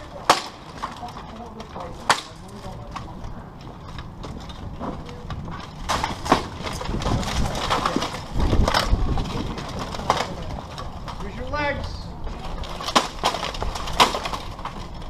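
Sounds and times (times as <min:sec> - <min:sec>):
plate armour clanking: 0:05.7 - 0:11.3, 0:12.5 - 0:14.8.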